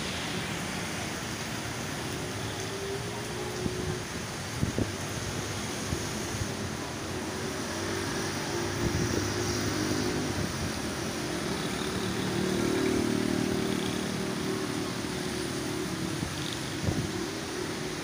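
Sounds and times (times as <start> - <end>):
tyre hiss on wet road: 0.0 - 18.0
small vehicle engines running: 6.4 - 18.0.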